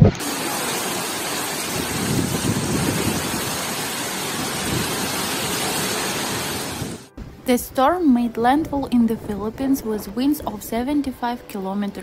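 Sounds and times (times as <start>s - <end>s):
heavy rain pouring: 0.0s - 7.1s
strong wind: 0.0s - 7.4s.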